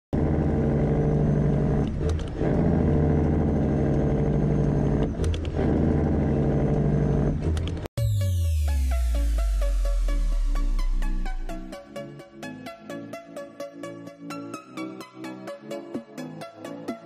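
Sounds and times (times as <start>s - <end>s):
diesel truck engine running: 0.2s - 7.9s.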